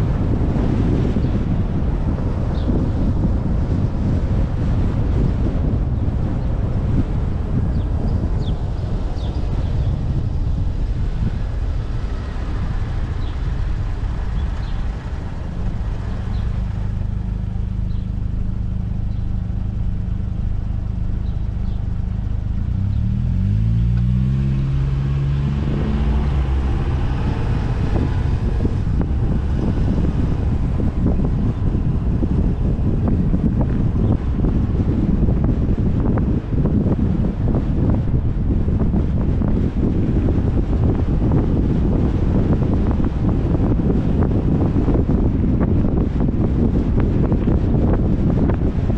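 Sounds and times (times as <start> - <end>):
road and wind rumble: 0.0 - 48.9
vehicle engine humming: 0.0 - 48.9.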